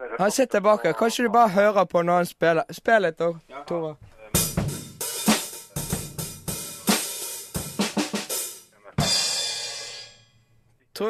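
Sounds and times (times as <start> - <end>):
drum kit playing: 4.3 - 10.3.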